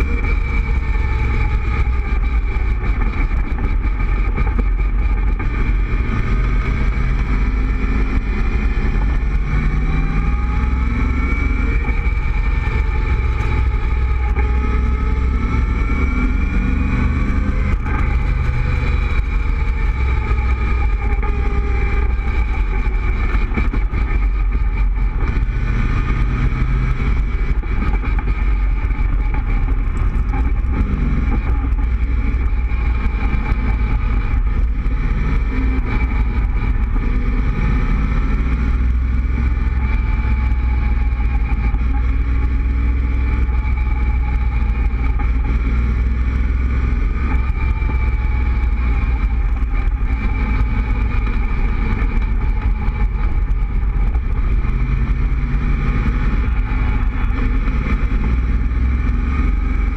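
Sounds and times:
car engine cruising: 0:00.0 - 0:59.9
wind and road rumble: 0:00.0 - 0:59.9.

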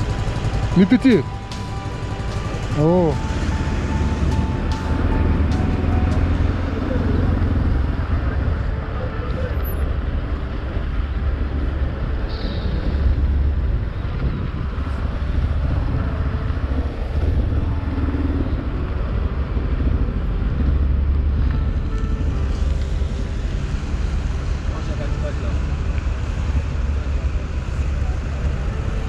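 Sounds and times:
motorcycle engine idling: 0:00.0 - 0:08.4
cars moving slowly: 0:00.0 - 0:29.0.

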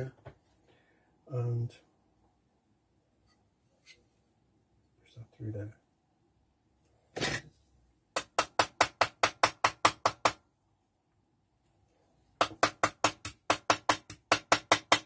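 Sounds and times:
small hammer tapping metal: 0:12.4 - 0:15.0.

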